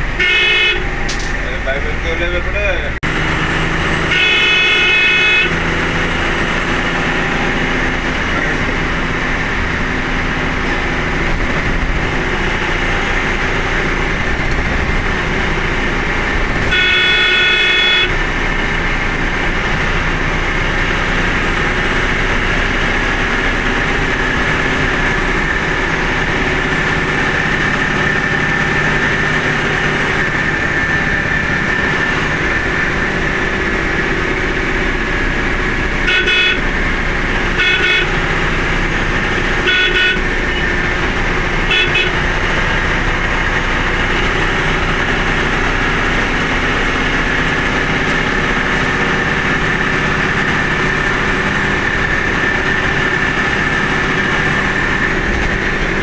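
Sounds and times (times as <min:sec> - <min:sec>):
vehicle engine and road noise: 0:00.0 - 0:56.0
vehicle horn: 0:00.1 - 0:01.2, 0:04.0 - 0:05.9, 0:16.6 - 0:18.3, 0:36.0 - 0:36.8, 0:37.5 - 0:38.5, 0:39.5 - 0:40.8, 0:41.6 - 0:42.4.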